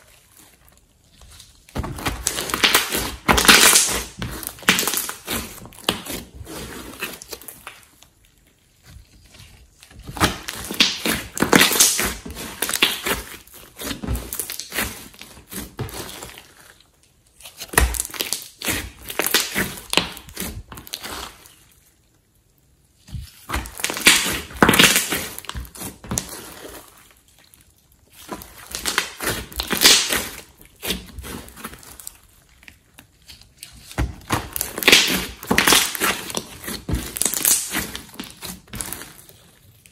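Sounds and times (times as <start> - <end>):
slime squishing and popping: 1.4 - 8.3, 10.0 - 16.5, 17.3 - 21.4, 23.2 - 39.9.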